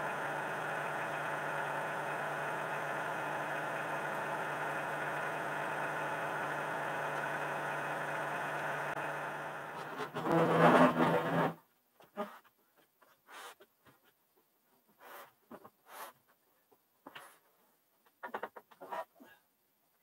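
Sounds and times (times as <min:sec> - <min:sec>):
diesel tractor engine idling: 0:00.0 - 0:10.0.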